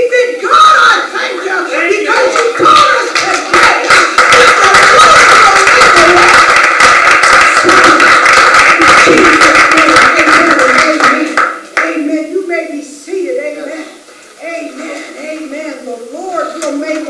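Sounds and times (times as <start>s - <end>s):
congregation clapping: 1.2s - 12.1s
people cheering: 1.8s - 11.4s.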